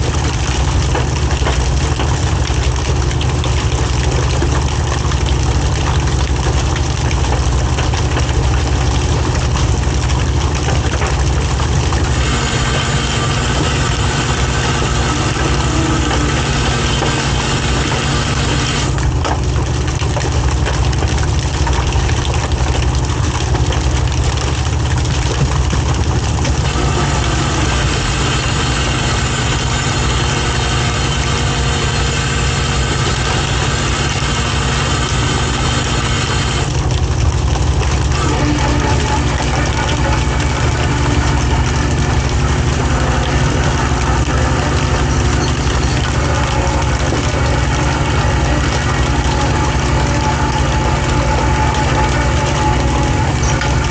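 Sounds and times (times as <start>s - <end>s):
diesel boat engine droning: 0.0s - 53.9s
higher-pitched mechanical tone: 11.0s - 19.2s, 26.2s - 37.0s, 37.9s - 53.9s.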